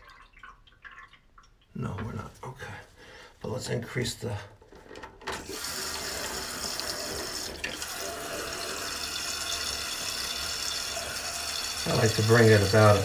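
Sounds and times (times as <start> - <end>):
water rushing into toilet tank: 5.4 - 13.0.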